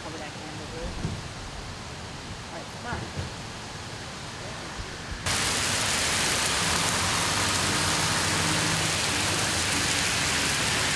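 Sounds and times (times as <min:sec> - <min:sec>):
heavy rain on pavement: 0:00.0 - 0:10.9
vehicle passing on wet road: 0:05.2 - 0:10.9.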